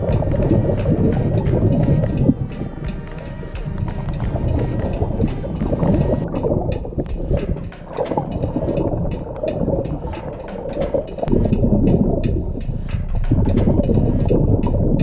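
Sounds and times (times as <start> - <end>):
sharp clicks underwater: 0.0 - 15.0
underwater air bubbling: 0.0 - 15.0.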